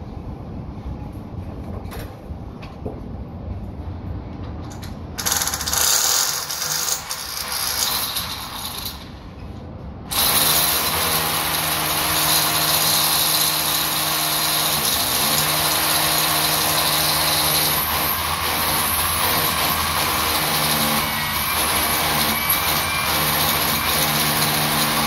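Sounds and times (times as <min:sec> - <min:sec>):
power drill whining: 0:05.2 - 0:09.0, 0:10.1 - 0:25.0.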